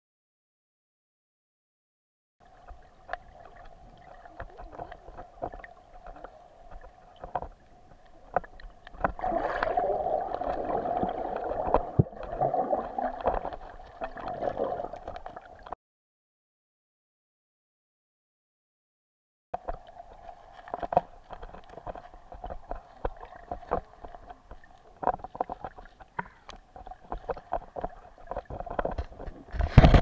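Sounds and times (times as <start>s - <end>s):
water churning: 2.4s - 15.8s, 19.6s - 30.0s
sharp clicks and knocks: 20.6s - 30.0s.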